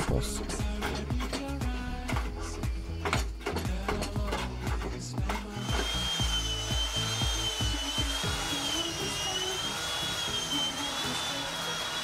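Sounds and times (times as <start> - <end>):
background music: 0.0 - 12.0
power tool motor whine: 5.2 - 12.0.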